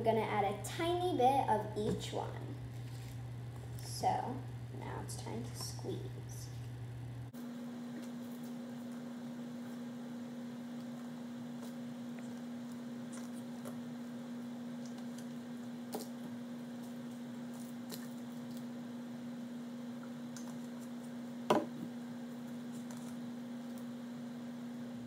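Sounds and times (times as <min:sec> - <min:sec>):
low hum: 0:00.0 - 0:25.0
plastic bottle knocking on table: 0:21.5 - 0:21.8.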